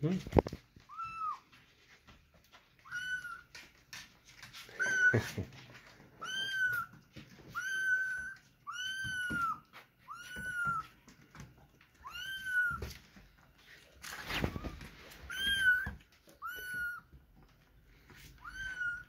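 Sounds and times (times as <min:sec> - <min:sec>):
kittens meowing: 0:00.9 - 0:01.4, 0:02.8 - 0:03.5, 0:04.7 - 0:05.4, 0:06.2 - 0:11.0, 0:12.0 - 0:13.0, 0:14.1 - 0:17.2, 0:18.2 - 0:19.0.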